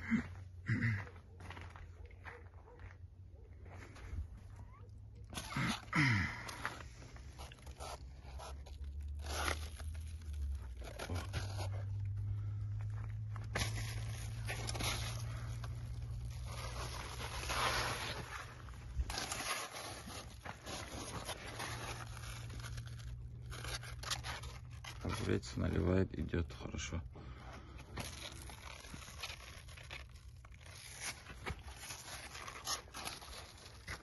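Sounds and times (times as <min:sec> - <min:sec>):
leaves rustling and scraping: 0:05.2 - 0:26.7, 0:27.8 - 0:34.0.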